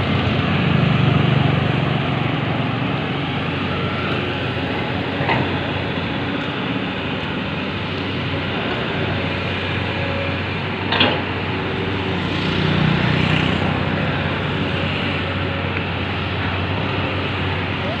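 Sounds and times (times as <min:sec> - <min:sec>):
excavator diesel engine running: 0:00.0 - 0:18.0.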